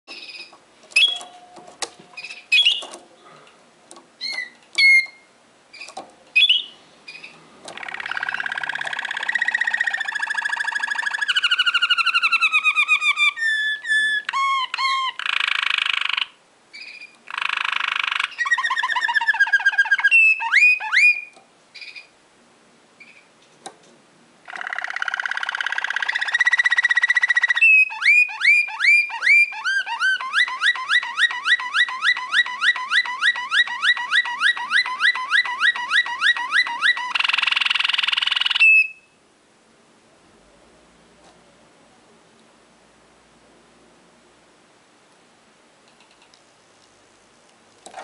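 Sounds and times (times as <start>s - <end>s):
canary chirps: 0.1s - 3.0s, 4.2s - 22.2s, 23.0s - 23.4s, 24.4s - 39.2s
canary song of rolling trills: 0.1s - 3.4s, 4.2s - 22.2s, 24.4s - 39.2s.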